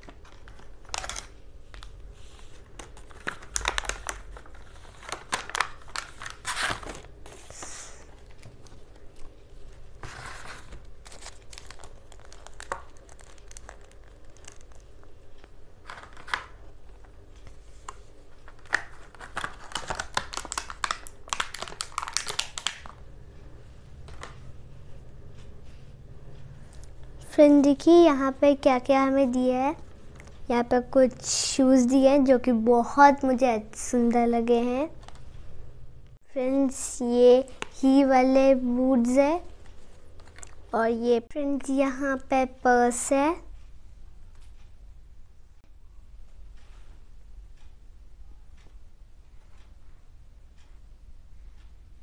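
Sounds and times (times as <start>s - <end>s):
plastic packaging crinkling: 0.0s - 9.4s, 10.0s - 15.1s, 18.4s - 23.0s.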